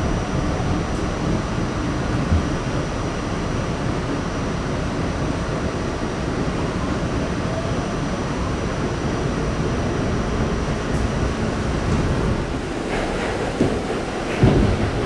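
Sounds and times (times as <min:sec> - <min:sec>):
subway car rumbling: 0:00.0 - 0:15.0.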